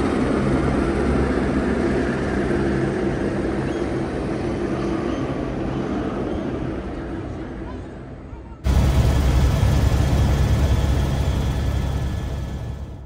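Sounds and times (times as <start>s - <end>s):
helicopter rotor and engine: 8.6s - 13.0s.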